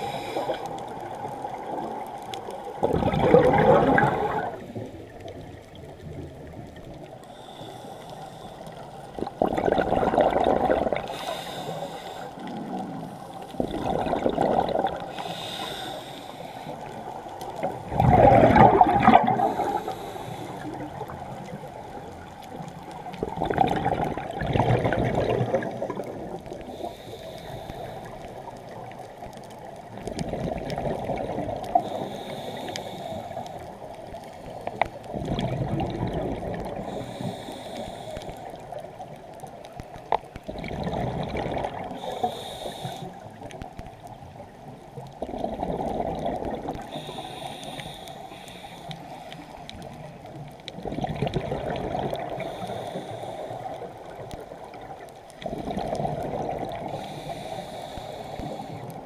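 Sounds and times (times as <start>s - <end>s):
regulator inhale hiss: 0.0s - 1.3s, 7.1s - 9.2s, 11.0s - 13.6s, 14.9s - 17.6s, 19.3s - 22.2s, 26.6s - 29.0s, 31.6s - 34.9s, 36.6s - 40.1s, 41.8s - 43.6s, 46.8s - 50.2s, 52.2s - 54.8s, 56.8s - 59.0s
exhaled bubbles rushing: 2.7s - 5.1s, 9.1s - 11.2s, 12.4s - 15.1s, 17.6s - 19.9s, 23.0s - 26.6s, 30.0s - 31.8s, 35.1s - 36.9s, 40.4s - 42.1s, 45.2s - 46.9s, 50.8s - 52.5s, 54.7s - 57.0s.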